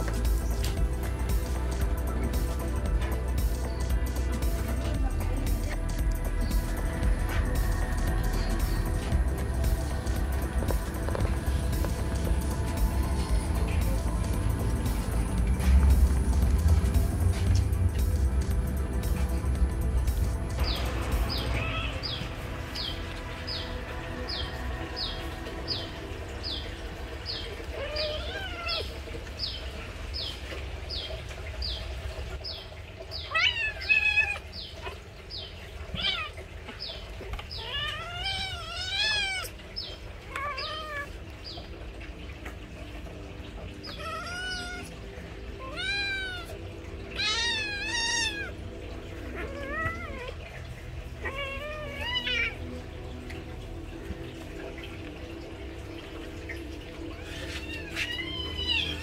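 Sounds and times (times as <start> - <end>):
kittens meowing: 21.3 - 22.3, 27.5 - 29.0, 33.3 - 35.0, 35.9 - 36.5, 37.4 - 39.6, 40.2 - 41.2, 43.8 - 52.8, 57.0 - 59.0.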